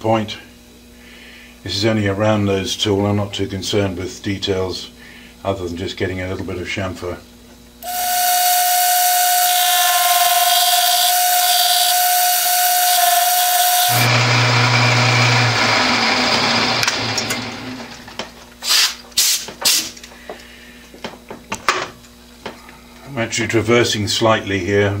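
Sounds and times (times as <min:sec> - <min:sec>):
lathe cutting squeal: 0:07.8 - 0:16.7
lathe humming: 0:07.8 - 0:18.0.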